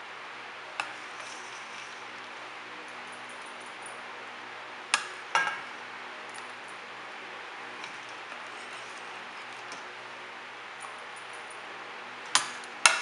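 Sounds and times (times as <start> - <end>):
kitchenware clinking: 5.0 - 6.5.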